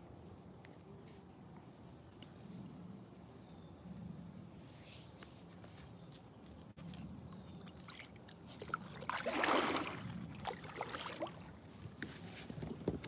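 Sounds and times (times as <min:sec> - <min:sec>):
kayak paddle splashing: 0:07.6 - 0:12.5.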